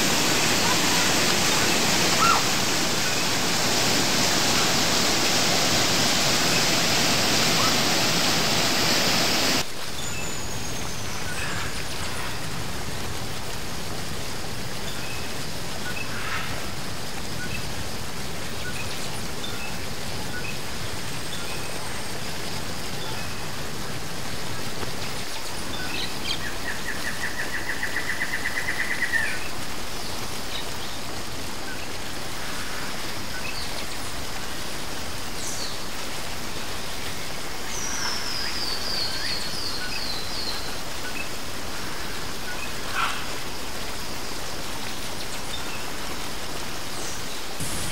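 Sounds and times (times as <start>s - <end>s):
small birds calling: 0.0s - 9.6s
waterfall rushing: 0.0s - 47.9s.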